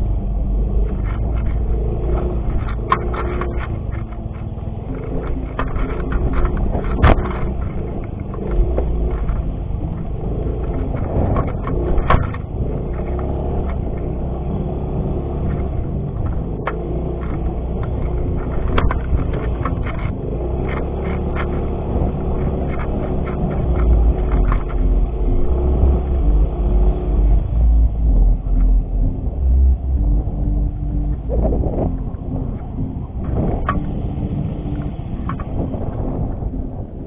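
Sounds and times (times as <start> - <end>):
scooter engine running: 0.0 - 37.0
knocks and rattles from bumps: 0.8 - 26.3.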